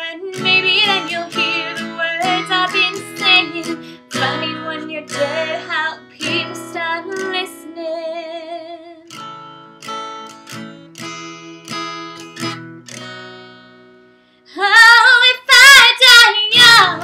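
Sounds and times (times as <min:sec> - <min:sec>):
acoustic guitar strummed chords: 0:00.0 - 0:07.8, 0:09.0 - 0:14.4
woman singing with vibrato: 0:00.0 - 0:09.1, 0:14.5 - 0:17.0.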